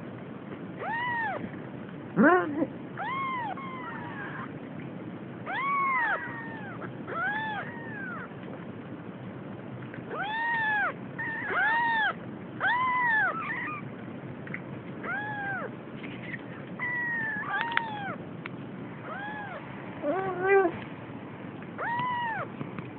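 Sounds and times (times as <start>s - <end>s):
kitten mewing: 0.8s - 1.4s, 2.2s - 4.5s, 5.5s - 8.3s, 10.1s - 13.8s, 15.0s - 18.2s, 19.0s - 20.8s, 21.8s - 22.5s.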